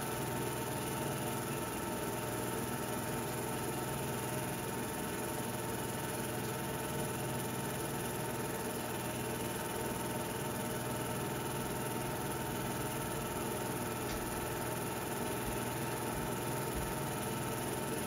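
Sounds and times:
mechanical hum and hiss: 0:11.2 - 0:18.0.

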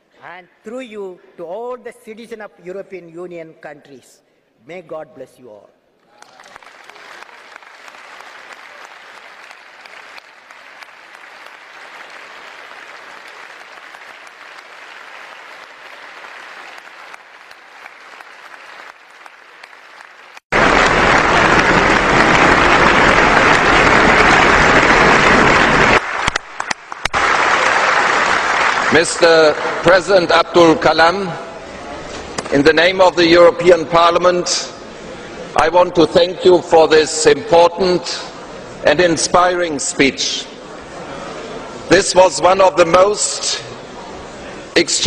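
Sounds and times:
large audience applauding: 0:06.1 - 0:30.5.

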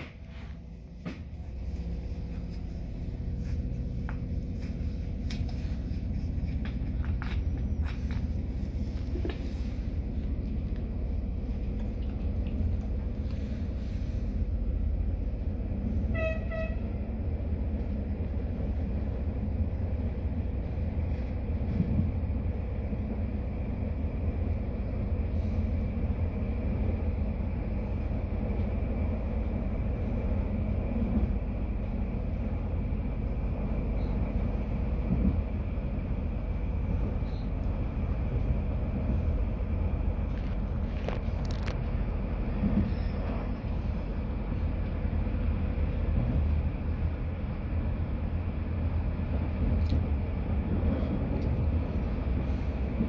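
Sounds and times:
train rumbling inside carriage: 0:00.0 - 0:53.0
train horn toot: 0:15.9 - 0:17.1.

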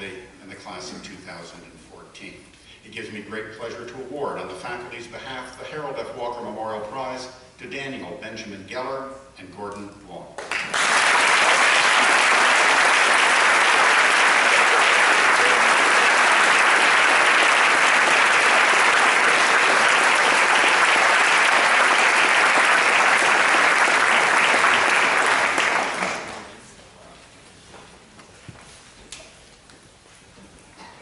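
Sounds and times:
audience applauding: 0:10.4 - 0:26.6.

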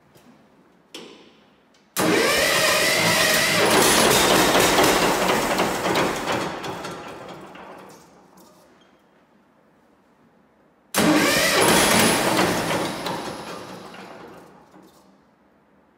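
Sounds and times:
tractor engine starting: 0:02.0 - 0:08.6, 0:11.0 - 0:15.0.

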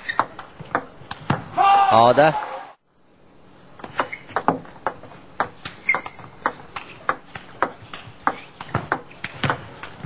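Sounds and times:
table tennis ball hits: 0:03.9 - 0:10.0.

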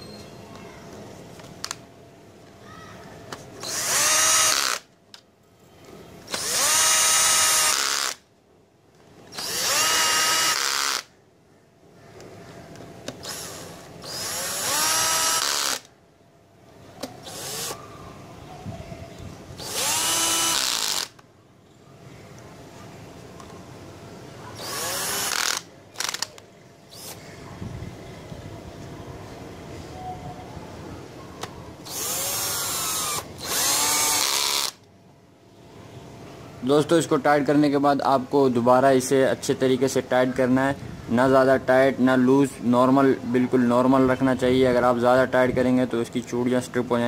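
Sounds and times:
cordless drill whining: 0:03.6 - 0:04.8, 0:06.3 - 0:08.2, 0:09.3 - 0:11.1, 0:13.2 - 0:15.9, 0:17.2 - 0:17.8, 0:19.6 - 0:21.2, 0:24.6 - 0:26.3, 0:31.8 - 0:34.8.

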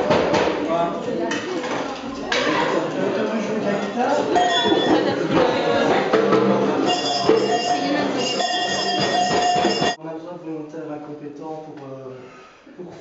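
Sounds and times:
steady ringing tones: 0:04.3 - 0:05.1, 0:06.8 - 0:10.0
rattling and knocking percussion: 0:06.2 - 0:10.0.

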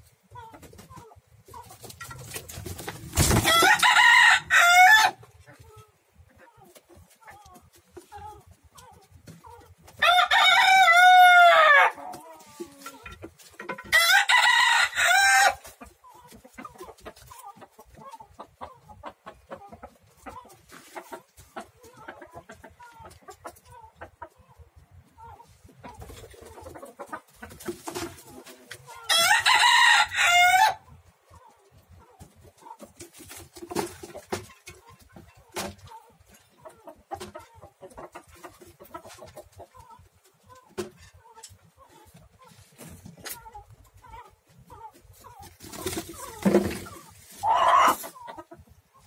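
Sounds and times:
rooster crowing: 0:03.4 - 0:05.2, 0:10.0 - 0:12.0, 0:13.9 - 0:15.6, 0:29.1 - 0:30.8.

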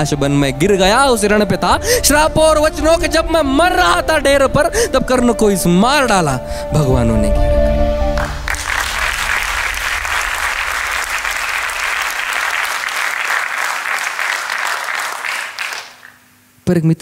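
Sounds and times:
audience applauding: 0:08.2 - 0:16.3.

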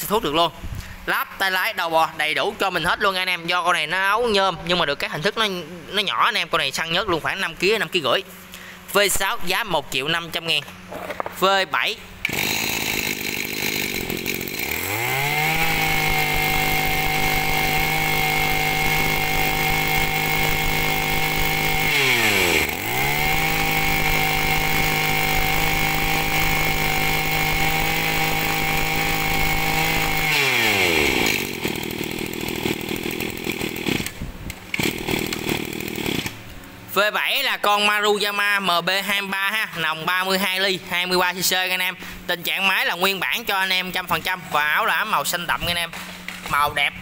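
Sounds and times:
brush cutter engine revving: 0:12.2 - 0:36.6.

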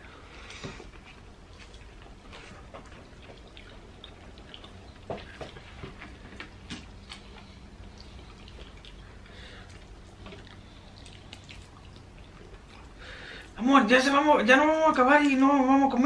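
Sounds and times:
low hum: 0:00.0 - 0:13.8
wet chewing clicks and smacks: 0:00.4 - 0:13.6.

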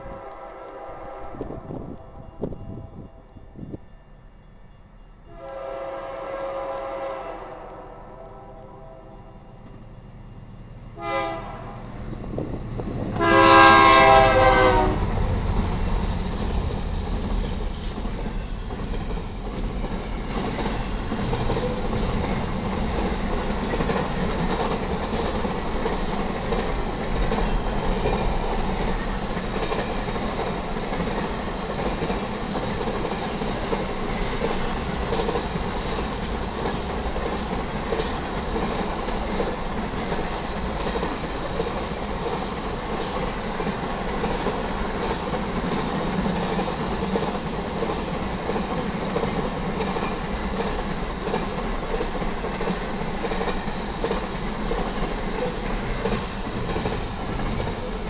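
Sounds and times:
locomotive air horn blasts: 0:00.0 - 0:03.2, 0:05.3 - 0:09.4, 0:11.0 - 0:11.9, 0:13.2 - 0:15.1
train wheels rumbling on rails: 0:00.0 - 0:58.0.

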